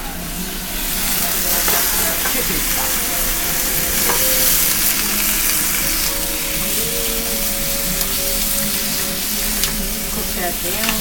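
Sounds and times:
greens sizzling in hot oil: 0.0 - 11.0
metal tongs clicking on pan: 1.2 - 3.0, 7.4 - 11.0.

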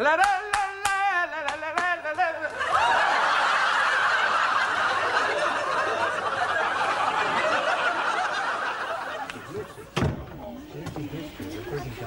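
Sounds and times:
studio audience laughing: 2.4 - 10.0.

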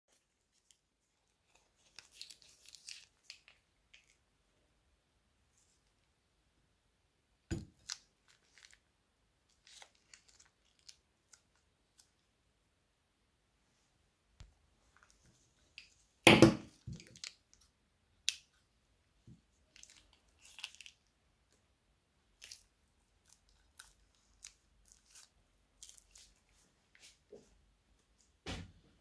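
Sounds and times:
plastic bags crinkling: 7.8 - 8.8, 9.5 - 11.4.

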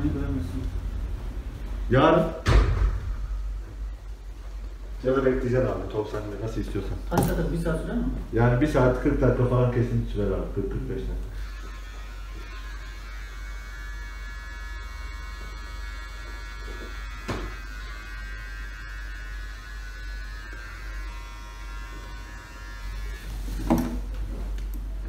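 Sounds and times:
electric hair trimmer running: 11.3 - 23.6.

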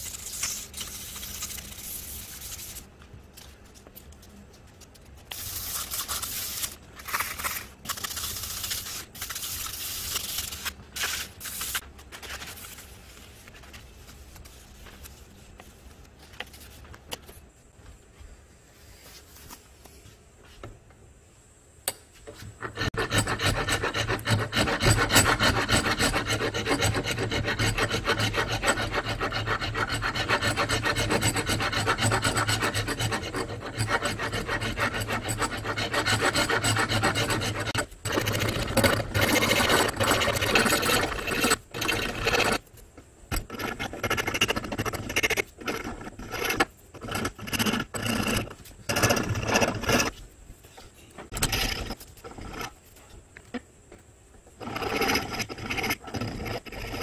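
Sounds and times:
hand file scraping wood: 22.4 - 42.6, 43.4 - 50.2.

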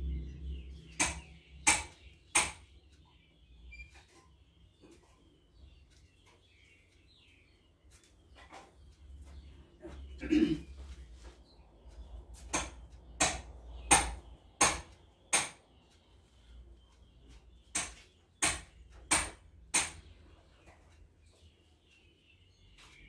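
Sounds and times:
sharp knocks: 1.0 - 2.7, 12.4 - 15.6, 17.7 - 20.1.

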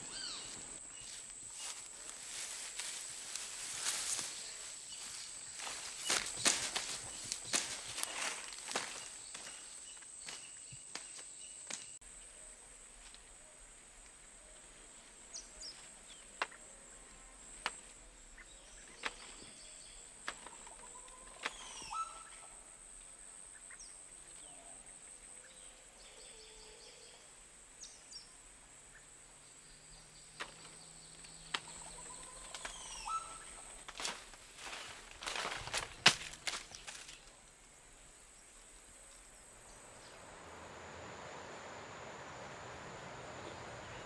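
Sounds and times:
bird chirps: 0.0 - 1.8, 18.4 - 22.5, 29.7 - 33.7
rustling: 0.0 - 10.4, 31.6 - 37.5.

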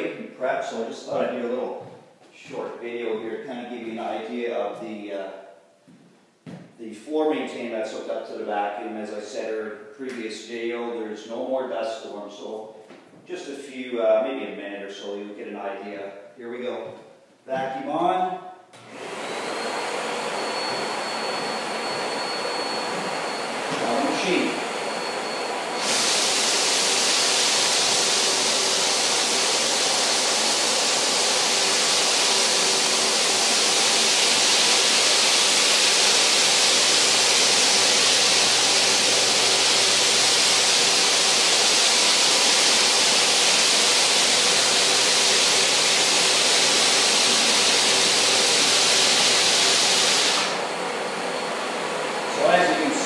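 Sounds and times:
floor sander running: 18.8 - 53.0
vacuum running: 18.8 - 53.0.

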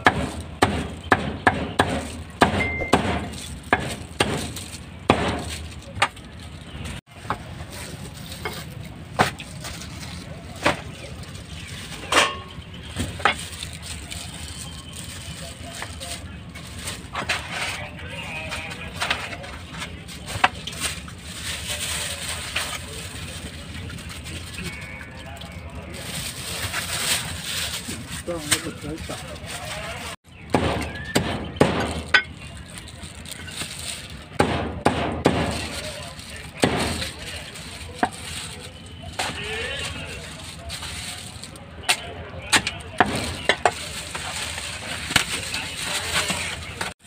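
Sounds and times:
meat cleaver chopping meat: 0.0 - 6.1, 34.4 - 35.7.

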